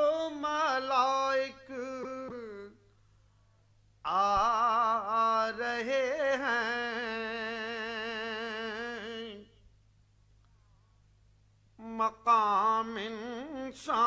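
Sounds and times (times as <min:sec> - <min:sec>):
man reciting unaccompanied: 0:00.0 - 0:02.9, 0:04.0 - 0:09.6, 0:11.8 - 0:14.0.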